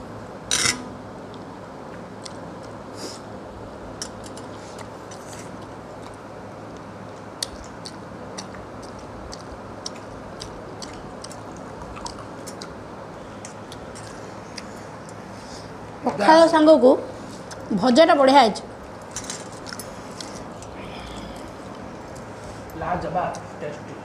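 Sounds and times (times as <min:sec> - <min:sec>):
people chewing: 0:04.0 - 0:15.7, 0:19.0 - 0:22.7
sharp clicks and smacks: 0:06.8 - 0:12.8.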